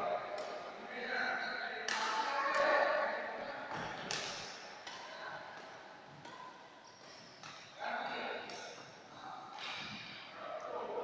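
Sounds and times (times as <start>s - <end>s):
rackets hitting shuttlecock: 0.3s - 0.7s, 1.8s - 2.7s, 3.7s - 10.0s.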